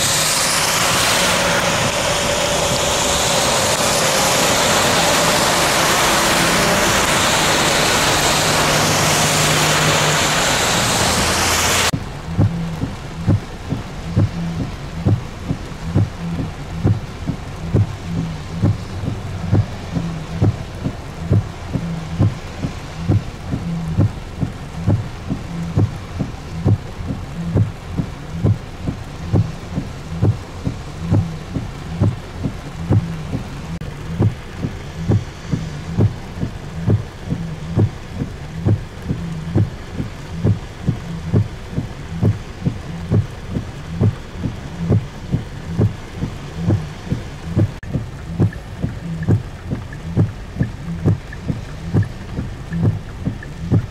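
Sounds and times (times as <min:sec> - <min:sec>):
heavy rain: 0:00.0 - 0:53.9
regular low thumping: 0:11.9 - 0:53.9.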